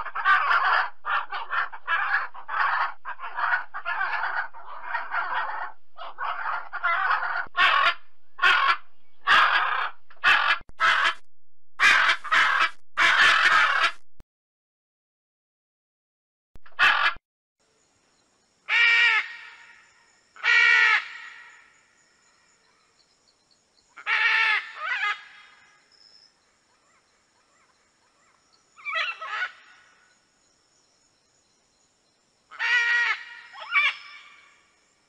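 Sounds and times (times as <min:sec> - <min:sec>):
macaw squawking: 0:00.0 - 0:11.2, 0:11.8 - 0:14.0, 0:16.7 - 0:17.2, 0:28.8 - 0:29.8, 0:32.6 - 0:34.5.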